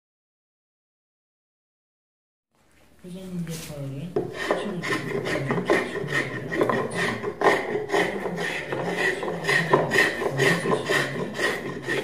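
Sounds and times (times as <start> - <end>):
edge tool scraping wood: 4.2 - 12.0.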